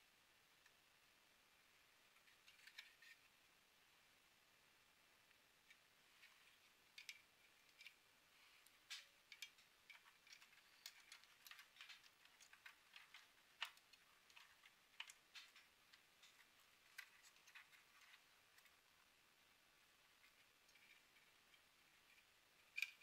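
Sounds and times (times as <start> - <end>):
plastic and metal parts clicking: 8.8 - 18.8.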